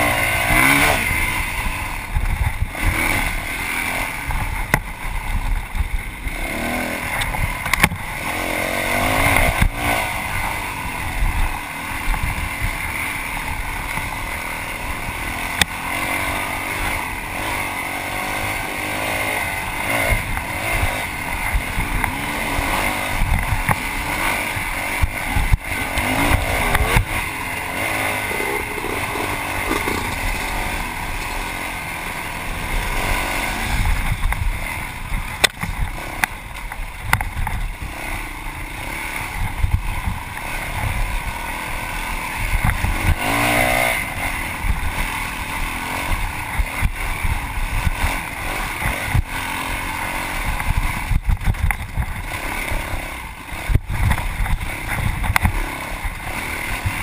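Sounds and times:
dirt bike engine revving: 0.0 - 57.0
sharp knocks from rough terrain: 7.2 - 8.1, 28.0 - 31.5, 35.3 - 37.6, 50.6 - 52.2, 53.7 - 55.6.

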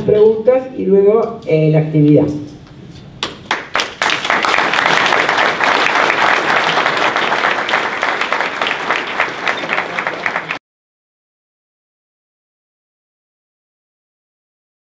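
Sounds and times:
audience applauding: 3.4 - 10.6.

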